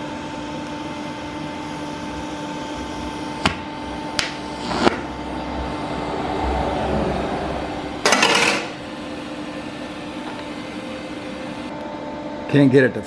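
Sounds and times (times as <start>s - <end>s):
welding arc hissing: 0.0s - 6.1s
welding machine hum: 0.0s - 12.6s.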